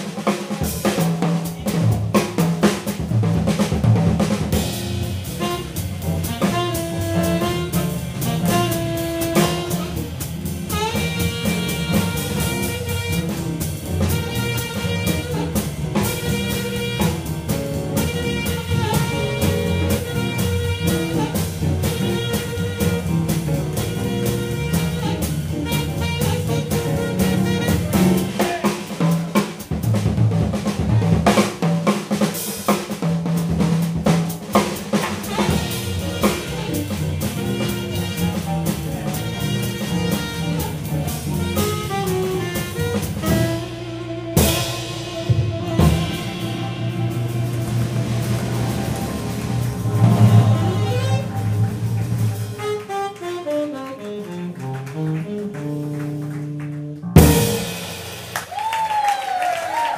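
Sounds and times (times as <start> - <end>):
drum kit: 0.0 - 59.9
jazz band playing swing: 0.0 - 59.9.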